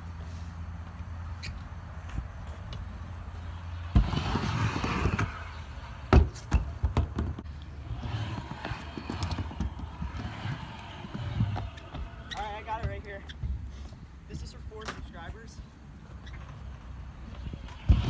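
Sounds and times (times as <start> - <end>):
scooter wheels rumbling: 2.1 - 13.9, 16.0 - 18.0.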